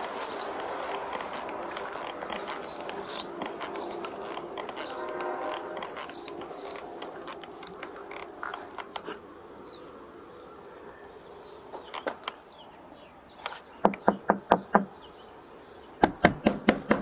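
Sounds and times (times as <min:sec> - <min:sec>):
knuckles knocking on car window: 0:13.8 - 0:14.9.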